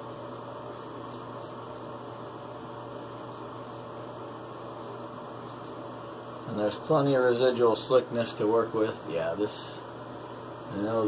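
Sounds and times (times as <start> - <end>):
background hum: 0.0 - 11.0
razor scraping stubble: 3.1 - 5.9.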